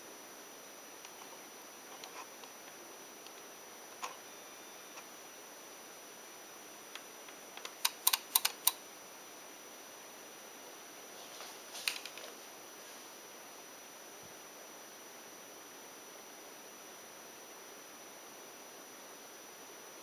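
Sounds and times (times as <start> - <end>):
faint steady hiss: 0.0 - 20.0
sharp clicks: 7.0 - 8.8.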